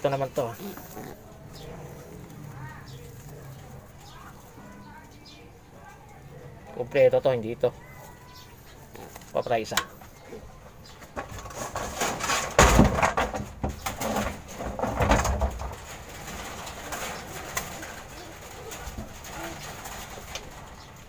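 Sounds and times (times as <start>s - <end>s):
pigeons cooing: 0.0s - 12.4s, 13.6s - 21.0s
rustling and knocks: 10.8s - 21.0s.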